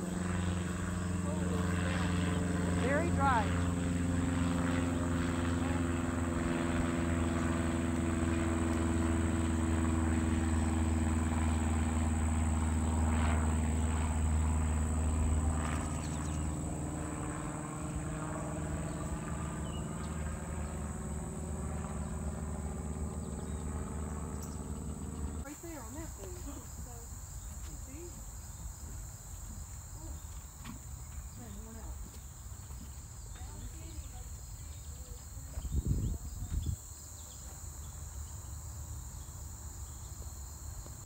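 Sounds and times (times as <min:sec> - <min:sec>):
low engine drone: 0:00.0 - 0:27.0
high insect trill: 0:04.3 - 0:41.0.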